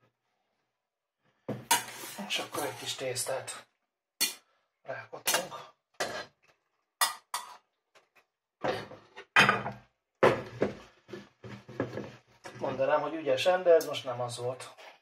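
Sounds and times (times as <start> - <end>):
metal spoon scraping saucepan: 1.7 - 3.0.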